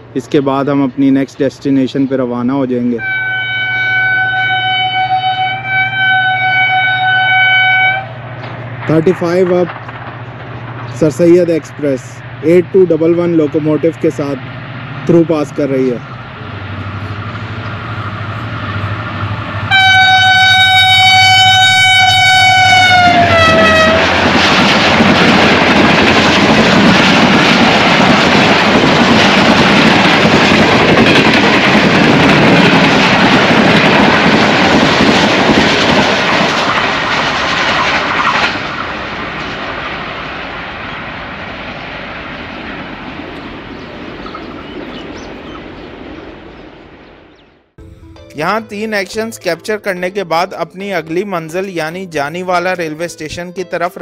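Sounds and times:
locomotive horn blast: 3.0s - 8.3s, 18.4s - 24.4s
train wheels clattering on rails: 8.3s - 11.6s, 22.9s - 46.2s.

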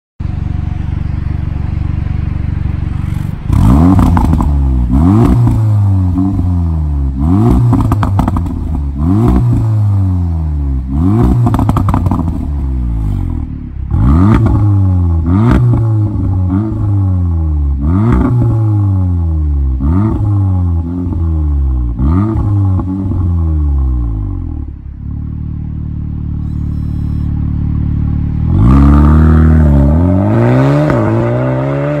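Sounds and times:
car engine idling: 0.2s - 30.2s
car engine revving: 0.2s - 32.0s
exhaust pops and crackles: 7.6s - 8.8s, 11.4s - 12.5s.

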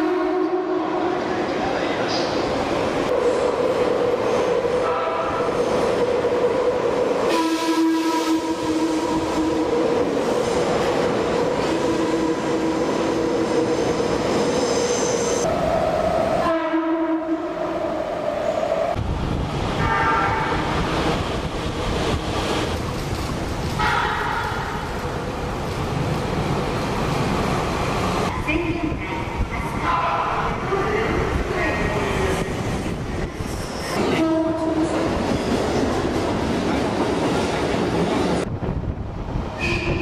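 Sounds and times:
train horns: 0.0s - 1.3s, 4.8s - 5.5s, 7.3s - 9.8s, 16.4s - 17.9s, 19.8s - 20.7s, 23.8s - 24.8s, 34.0s - 35.0s, 39.6s - 40.0s
train rumbling: 0.0s - 40.0s.

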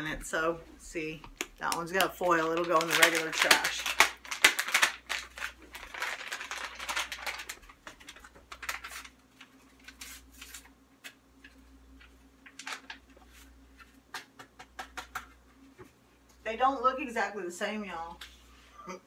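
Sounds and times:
faint steady hum: 0.0s - 19.0s
packaging crinkling: 1.2s - 14.3s.

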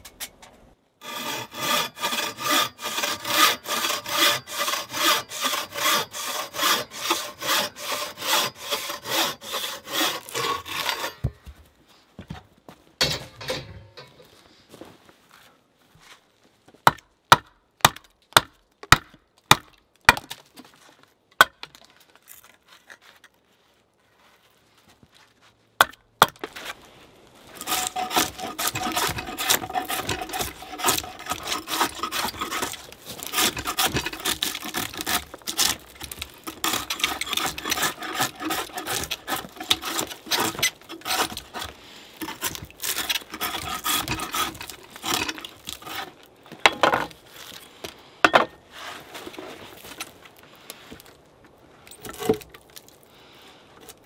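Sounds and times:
drawknife scraping bark off log: 1.0s - 11.3s, 27.6s - 46.2s.

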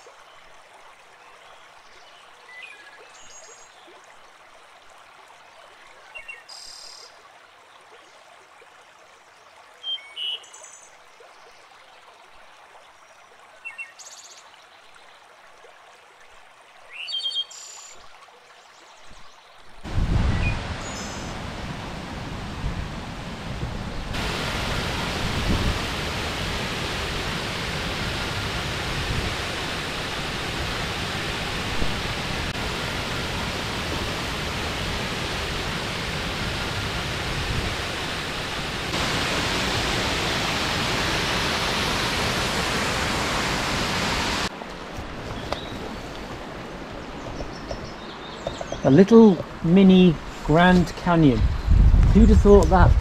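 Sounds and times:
stream flowing: 0.0s - 51.7s
waterfall rushing into pool: 19.8s - 47.2s.

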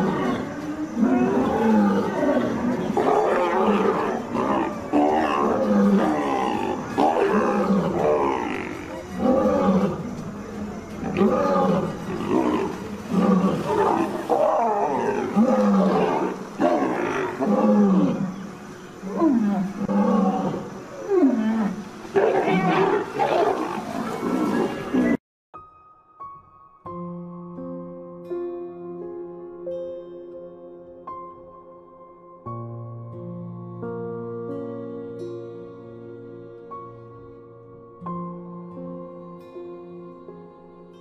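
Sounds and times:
leopard growling and snarling: 0.0s - 25.2s.

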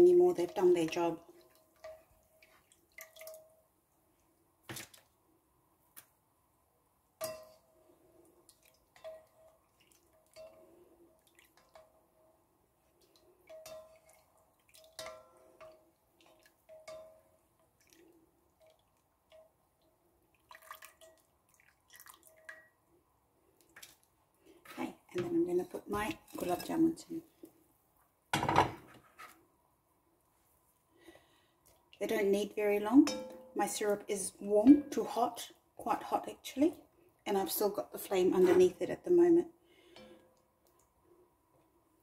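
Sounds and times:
syrup dripping into a pot: 1.3s - 3.7s, 12.8s - 22.9s.

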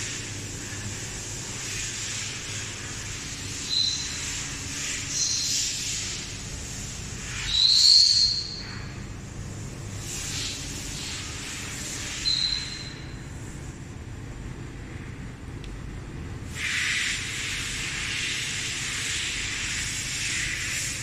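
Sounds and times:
low hum and hiss: 0.0s - 21.0s
short high whistles: 3.7s - 4.2s.

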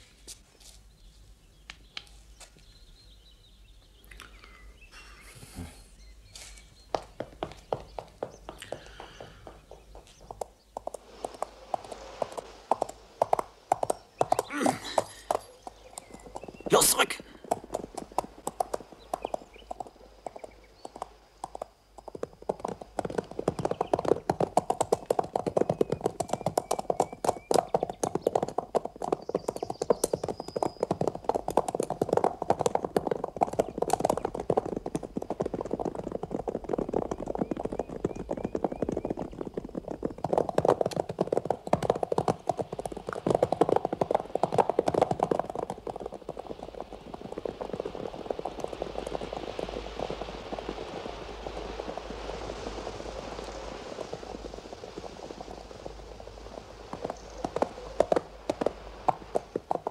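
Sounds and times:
horses galloping on grass: 0.0s - 59.9s
soft rushing noise: 6.4s - 23.0s, 45.8s - 59.9s.

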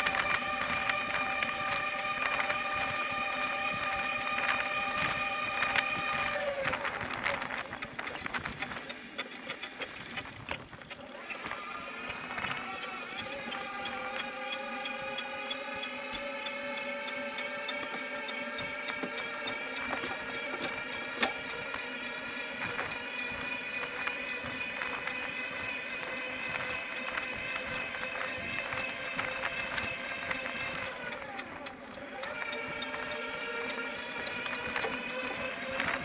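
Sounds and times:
bicycle wheel squealing: 0.0s - 36.0s.

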